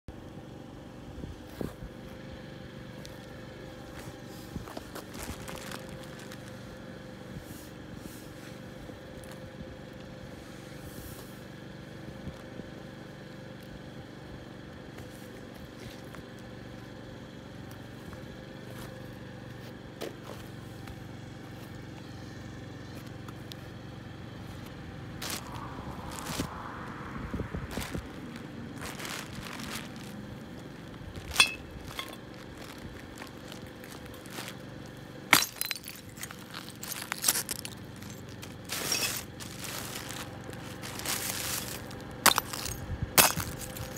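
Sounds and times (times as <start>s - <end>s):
low background hum: 0.1s - 43.9s
boots scuffing on asphalt: 3.0s - 6.8s, 17.6s - 23.7s, 24.4s - 43.9s
plastic bag crinkling: 5.0s - 6.6s, 25.2s - 26.5s, 27.7s - 35.0s, 35.6s - 42.8s.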